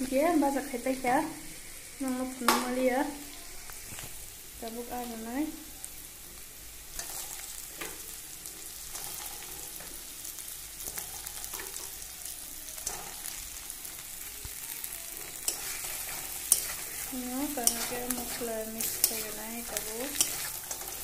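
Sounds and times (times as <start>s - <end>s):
fish sizzling in oil: 0.0s - 21.0s
metal spatula scraping a pan: 7.0s - 9.9s, 12.8s - 13.4s, 15.1s - 21.0s.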